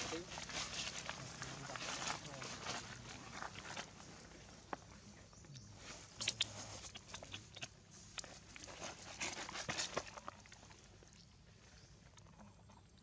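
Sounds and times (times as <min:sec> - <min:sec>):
dry leaves crackling and rustling: 0:00.0 - 0:04.2.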